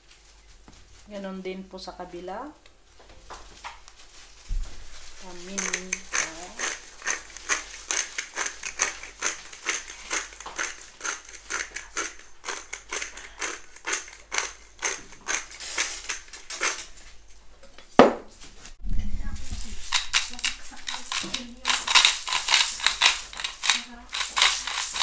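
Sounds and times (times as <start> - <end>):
pepper mill grinding: 5.0 - 17.1, 19.4 - 25.0.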